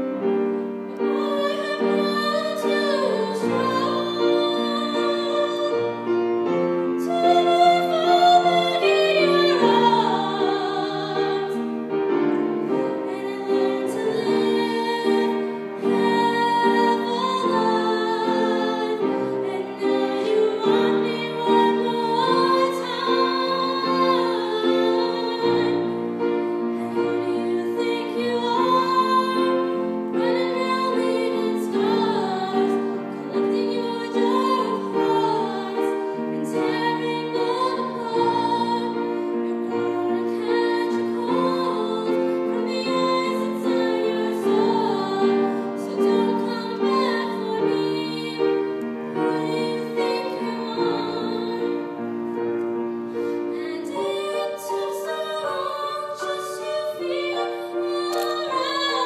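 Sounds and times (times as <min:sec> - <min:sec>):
instrumental accompaniment: 0:00.0 - 0:59.0
girl singing into microphone: 0:26.7 - 0:48.6, 0:53.6 - 0:59.0.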